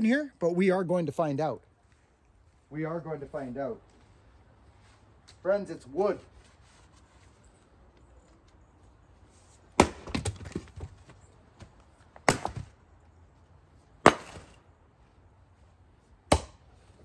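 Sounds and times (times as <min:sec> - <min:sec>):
axe chopping firewood: 0:09.8 - 0:10.9, 0:12.2 - 0:12.8, 0:14.0 - 0:14.6, 0:16.3 - 0:16.7.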